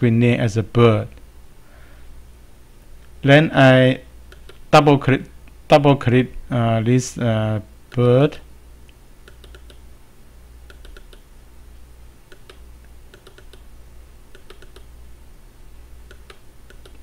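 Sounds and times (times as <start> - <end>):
faint low hum: 0.0 - 17.0
computer mouse clicking: 4.3 - 4.6, 9.2 - 9.8, 10.7 - 11.2, 12.3 - 13.7, 14.3 - 14.9, 16.1 - 17.0.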